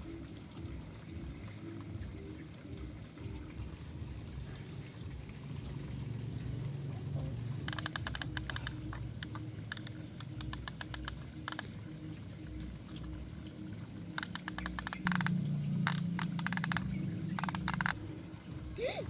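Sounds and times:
low steady hum: 0:00.0 - 0:19.0
toy winch ratchet clicks: 0:07.6 - 0:11.7, 0:14.1 - 0:18.0.

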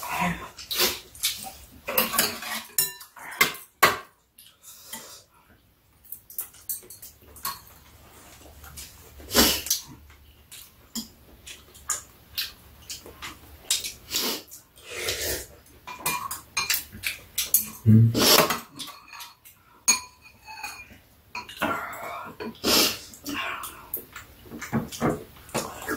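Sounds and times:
utensils clinking against bowls: 0:00.6 - 0:04.2, 0:06.0 - 0:07.9, 0:15.8 - 0:22.6.

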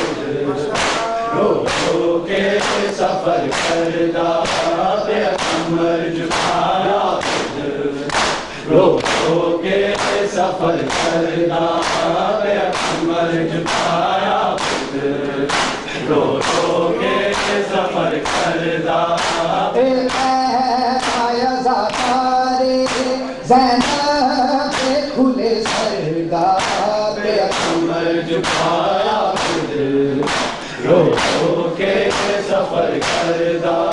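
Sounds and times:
man chanting: 0:00.0 - 0:02.2, 0:19.5 - 0:28.4
group of men singing: 0:00.0 - 0:33.9
hands slapping chests: 0:00.7 - 0:18.6, 0:19.2 - 0:20.4, 0:21.0 - 0:22.2, 0:22.8 - 0:23.2, 0:25.6 - 0:26.0, 0:26.6 - 0:27.8, 0:28.4 - 0:33.9.

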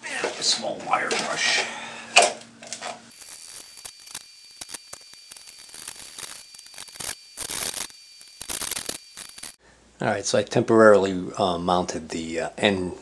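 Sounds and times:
rag scrubbing greasy metal screw: 0:03.1 - 0:09.6.

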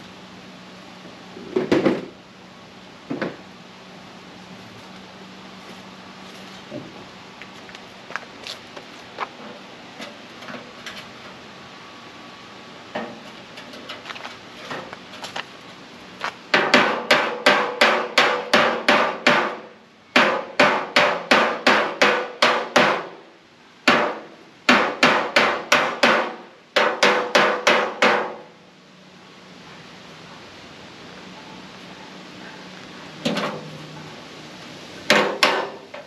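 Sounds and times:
hammer striking sheet metal: 0:16.5 - 0:23.2, 0:23.9 - 0:28.4, 0:35.1 - 0:36.0.

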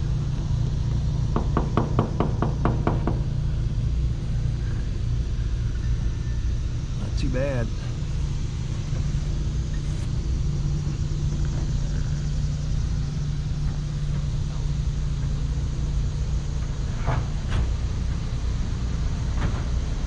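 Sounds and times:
motor running with hum: 0:00.0 - 0:20.0.

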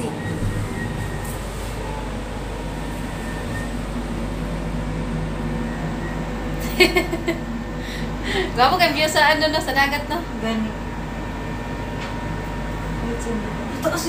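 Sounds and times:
air conditioning hum: 0:00.0 - 0:14.0
voice: 0:08.4 - 0:10.8, 0:13.0 - 0:14.0.

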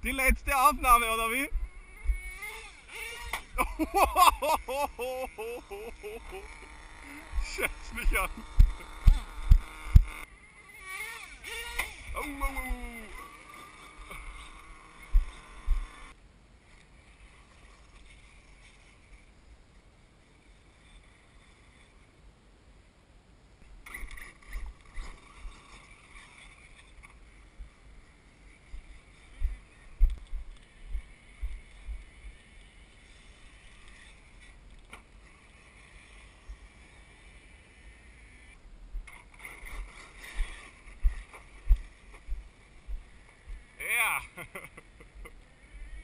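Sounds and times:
high motor whine: 0:00.0 - 0:16.2, 0:23.7 - 0:46.0
wind: 0:00.0 - 0:46.0
low thumps and rumble: 0:07.3 - 0:10.2, 0:15.1 - 0:15.9.

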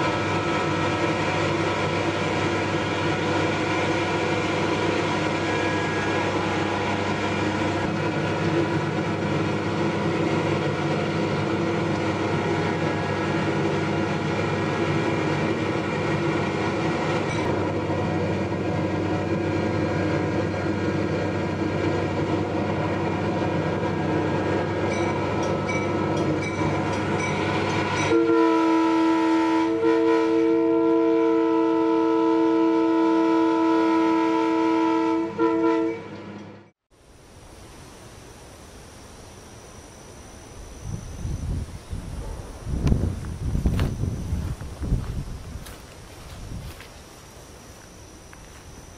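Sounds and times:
locomotive horn: 0:00.0 - 0:10.6, 0:27.5 - 0:36.4
diesel locomotive running: 0:00.0 - 0:48.9.

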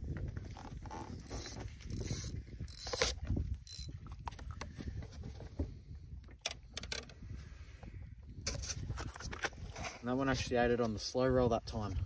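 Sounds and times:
clicks scrapes and rustles: 0:08.4 - 0:10.1.

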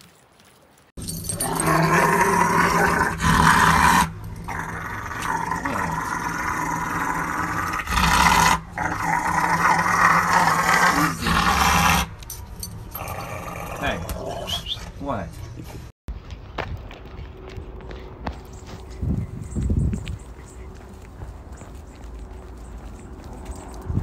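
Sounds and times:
dog growling howls: 0:01.4 - 0:12.0.

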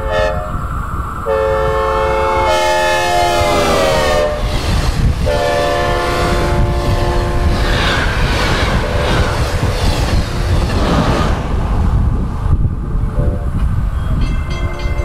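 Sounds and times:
locomotive air horn: 0:00.0 - 0:00.6, 0:01.3 - 0:04.6, 0:05.2 - 0:07.7
passing train rumble: 0:00.0 - 0:15.0.

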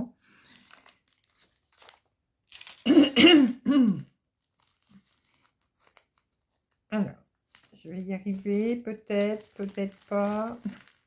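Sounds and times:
woman coughing: 0:02.8 - 0:04.1.

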